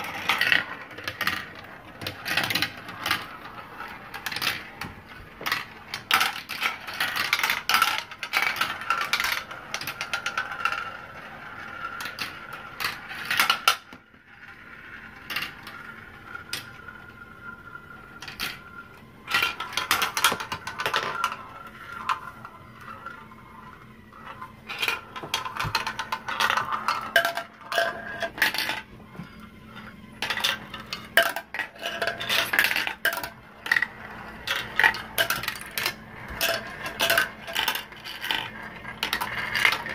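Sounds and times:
marbles rattling through plastic track: 0.0s - 39.9s
steady whirring tone: 14.0s - 39.9s.

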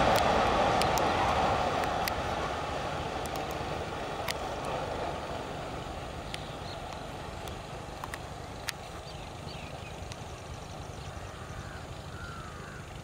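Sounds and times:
sharp clicks: 0.0s - 2.3s, 3.2s - 3.6s, 4.2s - 4.8s, 6.2s - 8.9s
freight train rumble: 0.0s - 13.0s.

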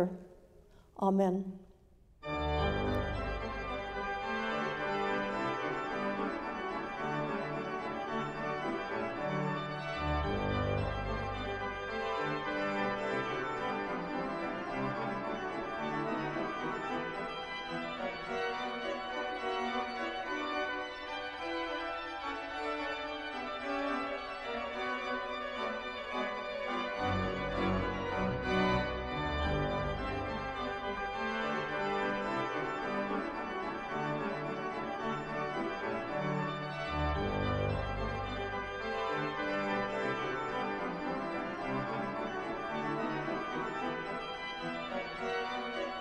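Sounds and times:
deep organ pedal bass notes: 2.2s - 13.9s, 26.4s - 46.0s
organ chords: 2.2s - 46.0s.

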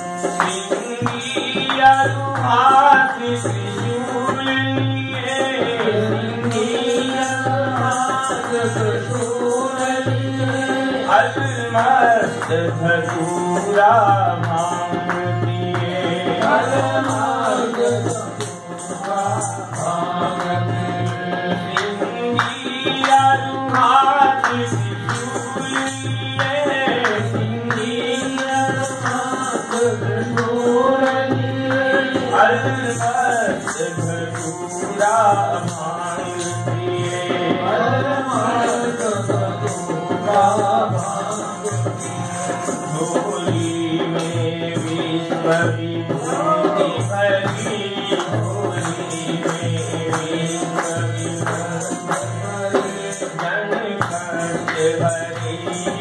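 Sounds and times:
harmonium chords: 0.0s - 56.0s
man singing: 0.0s - 56.0s.

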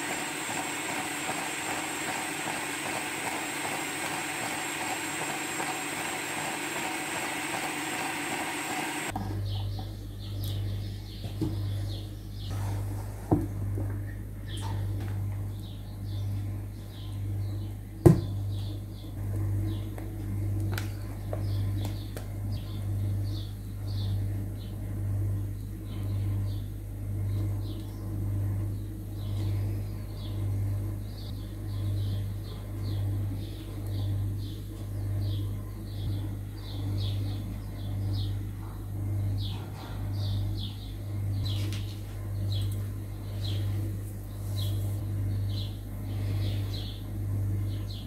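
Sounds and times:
steady low hum: 0.0s - 48.0s.

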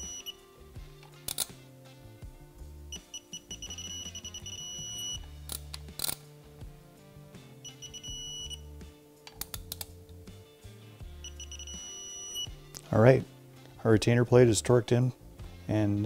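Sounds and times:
torque wrench beeping: 0.0s - 0.4s, 2.9s - 5.3s, 7.6s - 8.6s, 11.2s - 12.5s
background music: 0.0s - 16.0s
wrench clicking on bolts: 1.3s - 1.6s.

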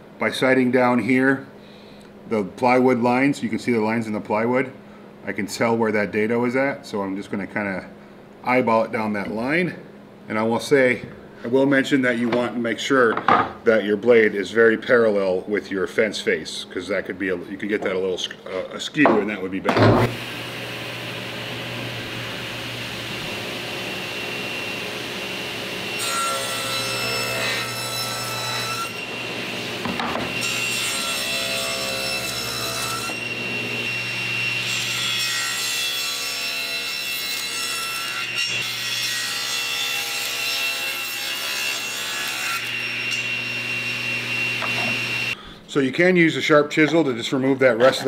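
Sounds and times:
table saw blade whine: 19.9s - 45.4s.

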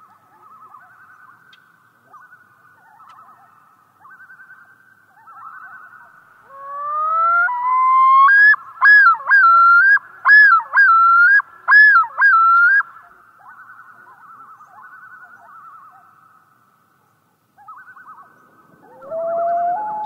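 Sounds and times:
faint wavering calls: 0.0s - 20.0s
loon yodel: 6.5s - 12.8s, 18.8s - 20.0s.

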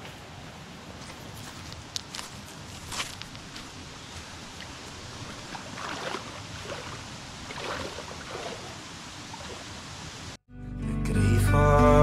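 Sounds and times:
water sloshing and splashing: 4.4s - 10.2s.

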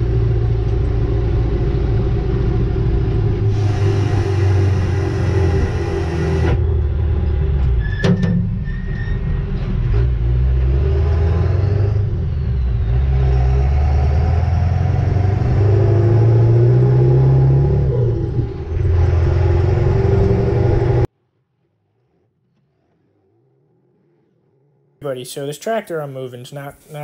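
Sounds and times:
diesel truck engine pulling: 0.0s - 21.1s
road noise: 0.0s - 21.1s.

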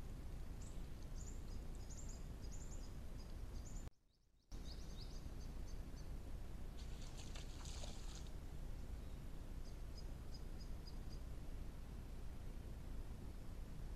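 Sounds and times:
microphone hiss and low rumble: 0.0s - 3.9s, 4.6s - 13.9s
deer muzzle splashing in mud: 6.8s - 8.4s.

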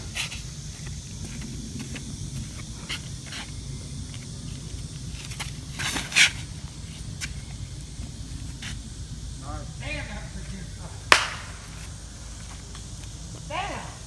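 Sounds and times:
footsteps scuffing on concrete: 0.0s - 7.6s
disc throw scraping rush: 0.0s - 9.0s.

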